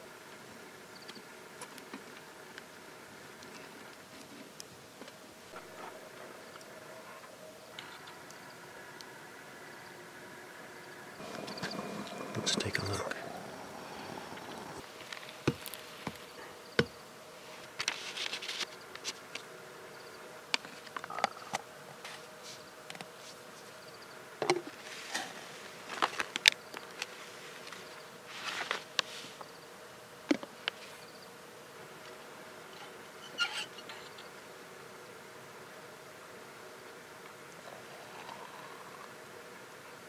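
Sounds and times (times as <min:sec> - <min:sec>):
faint buzz: 0:00.0 - 0:40.0.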